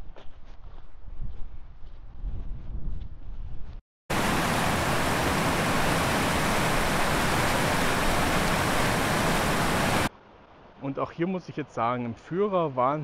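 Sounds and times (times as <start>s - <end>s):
river rushing over rocks: 4.1s - 10.1s.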